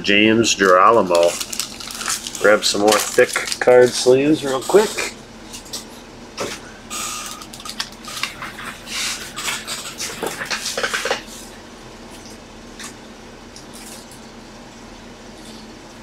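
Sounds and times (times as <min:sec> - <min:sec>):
plastic card sleeves rustling: 0:00.6 - 0:05.1.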